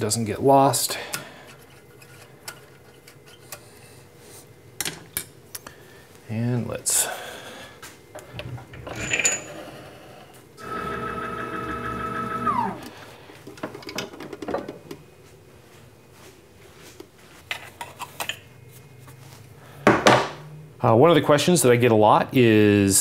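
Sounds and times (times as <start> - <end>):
metal clinks and knocks: 8.8 - 9.6
electric motor whining: 10.6 - 12.9.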